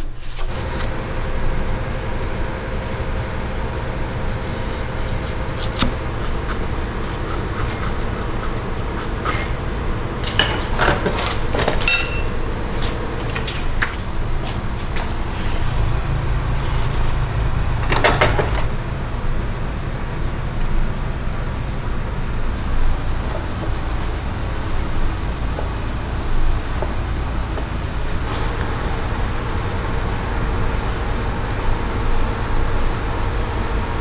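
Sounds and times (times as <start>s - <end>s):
short metallic ring: 11.8s - 12.5s.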